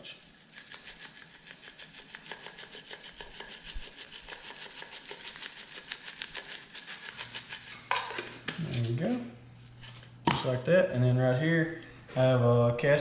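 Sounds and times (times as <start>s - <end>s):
spice shaker rattling: 0.0s - 8.5s.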